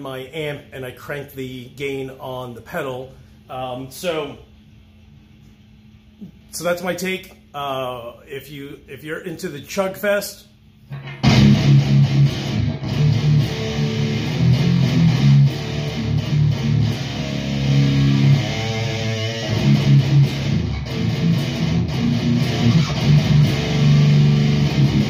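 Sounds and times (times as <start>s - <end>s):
distorted electric guitar riff: 10.9s - 25.0s.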